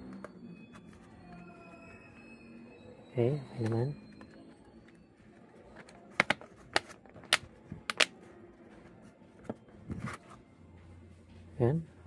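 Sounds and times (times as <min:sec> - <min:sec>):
plastic clips snapping: 0:06.2 - 0:08.1.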